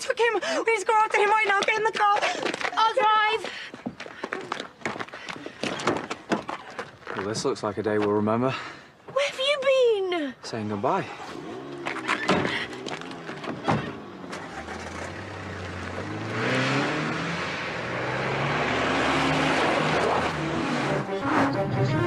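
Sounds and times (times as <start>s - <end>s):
road and tyre noise: 10.5s - 21.8s
car engine accelerating: 11.2s - 21.8s
car doors shutting: 11.3s - 15.7s.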